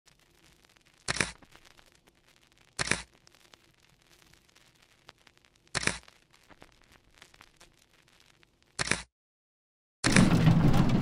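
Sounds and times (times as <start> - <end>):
faint crackle: 0.0 - 9.1
sharp noise bursts: 2.7 - 3.1.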